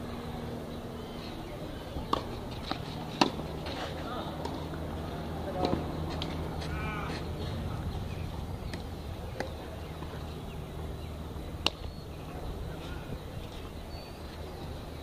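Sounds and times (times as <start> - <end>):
steady low hum: 0.0 - 15.0
racket hitting tennis ball: 2.0 - 4.7.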